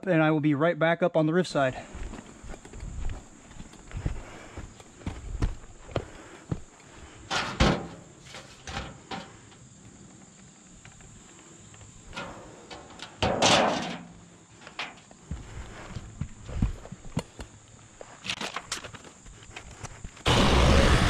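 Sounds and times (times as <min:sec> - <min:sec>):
sheet metal scraping and rattling: 0:07.3 - 0:09.4.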